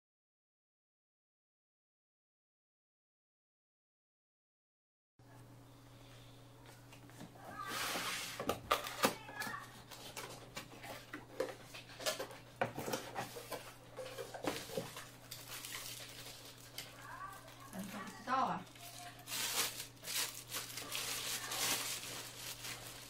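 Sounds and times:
plastic bag rustling: 7.5s - 23.0s.

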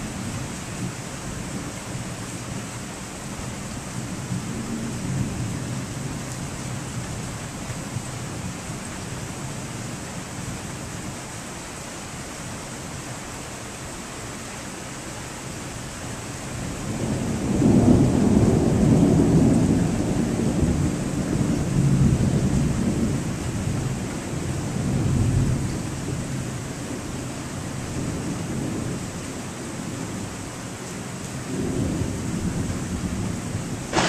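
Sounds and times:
rolling thunder: 16.8s - 23.2s, 31.5s - 34.0s
rain hissing: 32.6s - 34.0s.

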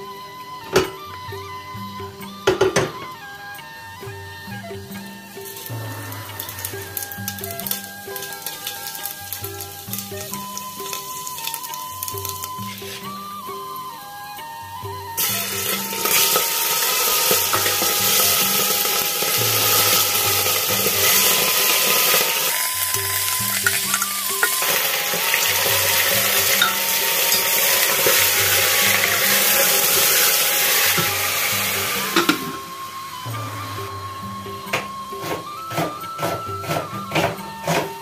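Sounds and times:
background music: 0.0s - 38.0s
chicken sizzling in hot oil: 5.2s - 13.4s, 15.2s - 33.9s.

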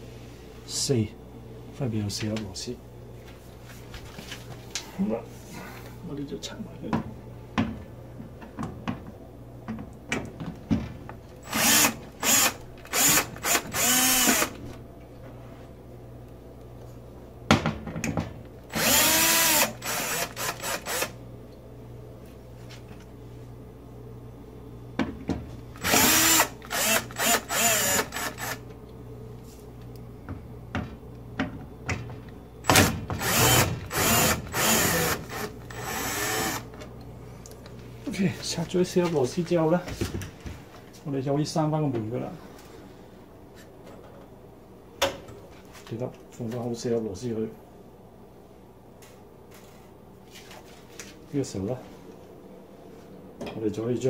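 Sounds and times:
electric screwdriver whirring: 11.4s - 14.6s, 18.7s - 21.2s, 25.8s - 28.6s, 32.6s - 36.7s.

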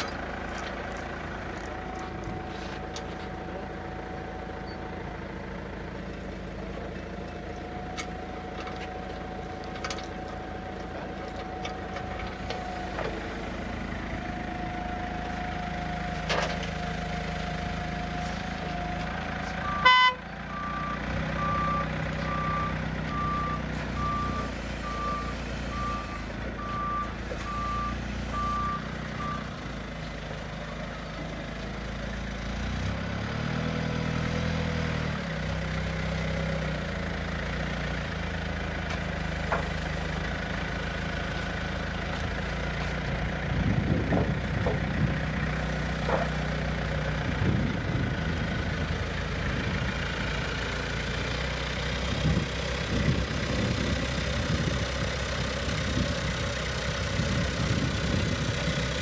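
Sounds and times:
forklift engine running: 0.0s - 59.0s
reverse alarm beeping: 19.6s - 29.5s.

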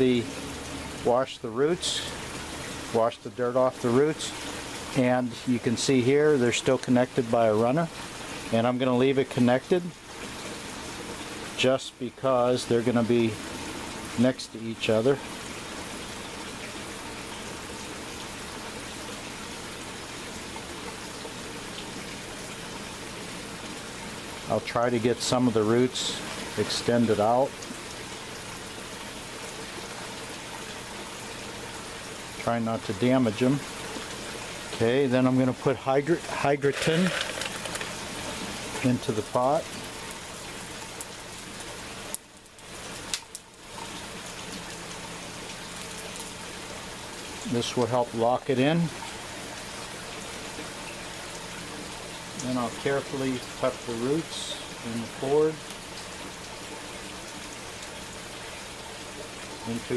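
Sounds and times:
rushing water: 0.0s - 59.9s
clay pebbles clicking into pot: 36.6s - 38.1s.

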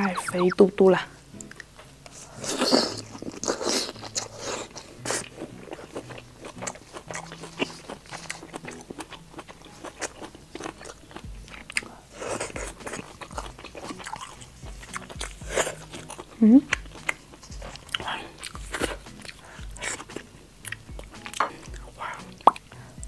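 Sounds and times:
person chewing shellfish: 1.4s - 23.0s.

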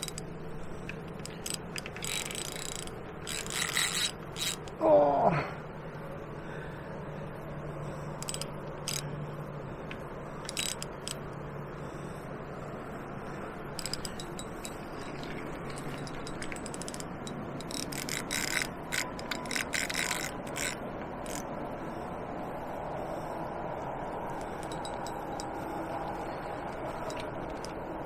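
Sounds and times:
fishing reel clicking: 0.0s - 4.8s, 8.2s - 9.1s, 10.4s - 11.3s, 13.8s - 21.5s, 24.3s - 25.5s, 26.7s - 27.8s.

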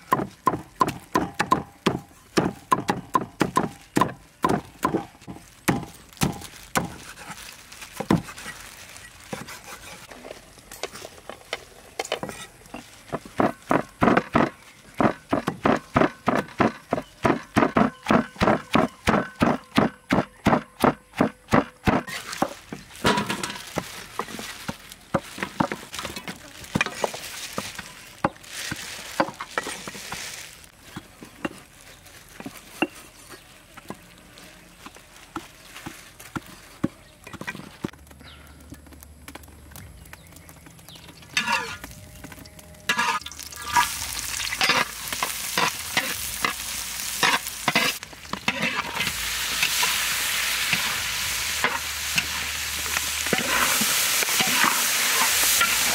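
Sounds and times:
utensil stirring in pan: 6.9s - 11.5s
food sizzling in oil: 41.2s - 55.9s.

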